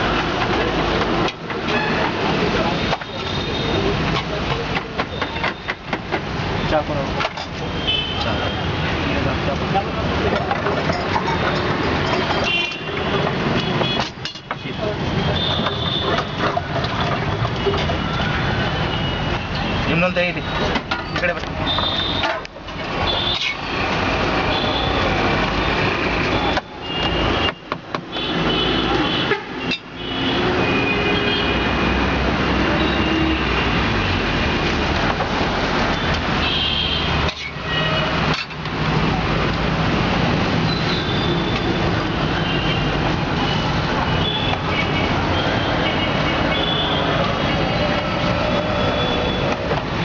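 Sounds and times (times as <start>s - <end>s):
traffic running: 0.0s - 50.0s
car horns tooting: 1.6s - 4.1s, 11.5s - 23.7s, 24.4s - 31.9s, 40.6s - 49.7s.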